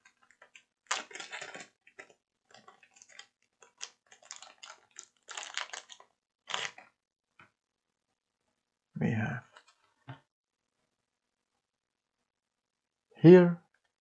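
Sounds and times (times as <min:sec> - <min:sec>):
paper tape crinkling: 0:00.0 - 0:06.9.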